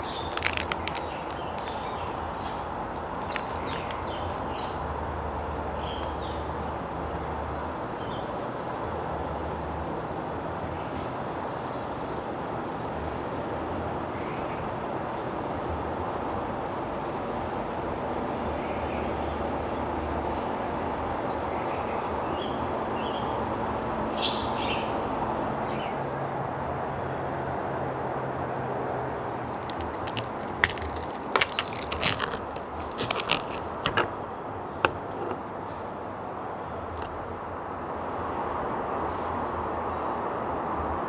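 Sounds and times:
birds chirping: 0:00.0 - 0:06.9
outdoor background hum: 0:00.0 - 0:41.0
plastic cup clicking on tray: 0:32.6 - 0:35.4.

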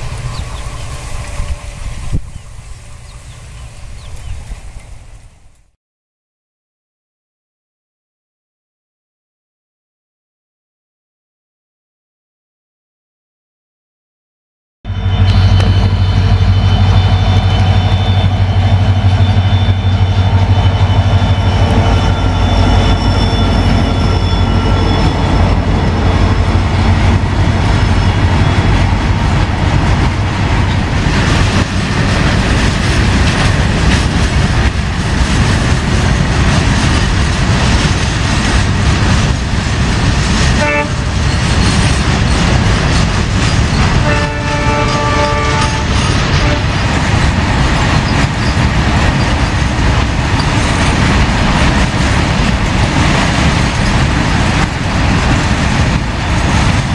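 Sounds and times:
locomotive engine hum: 0:00.0 - 0:05.7, 0:14.9 - 0:56.9
train horn blast: 0:14.9 - 0:26.9, 0:40.6 - 0:41.1, 0:44.0 - 0:46.7
train wheels clickety-clack: 0:15.3 - 0:56.9.

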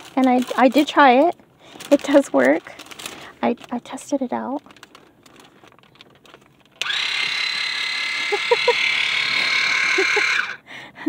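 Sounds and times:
water flosser pump buzzing: 0:06.8 - 0:10.6.

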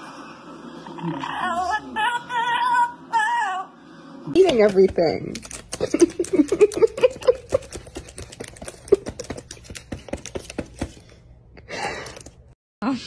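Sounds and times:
parrot pecking keyboard keys: 0:04.4 - 0:11.2.

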